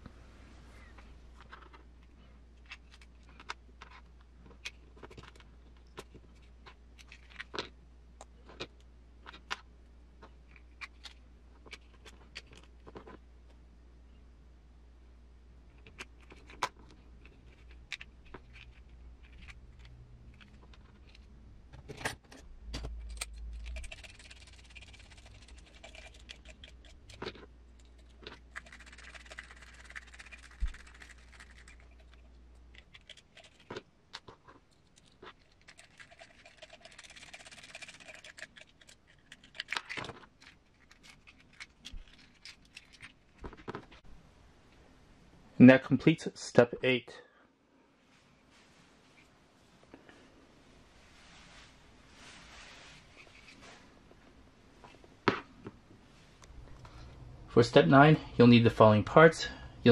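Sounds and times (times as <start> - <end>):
faint scraping and rustling: 47.8 - 58.3.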